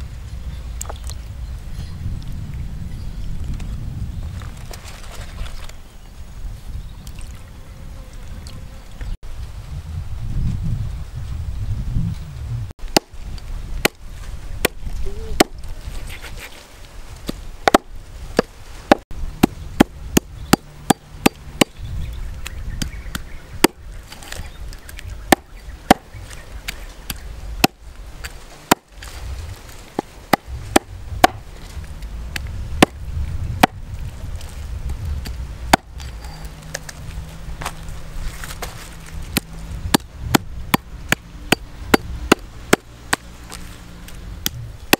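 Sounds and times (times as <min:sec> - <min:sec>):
cleaver chopping on wooden block: 0:12.9 - 0:13.1, 0:17.3 - 0:21.8, 0:25.3 - 0:26.1, 0:27.1 - 0:27.8, 0:28.7 - 0:28.9, 0:30.0 - 0:31.4, 0:32.8 - 0:33.0, 0:33.6 - 0:33.8, 0:35.7 - 0:36.1, 0:39.4 - 0:43.2.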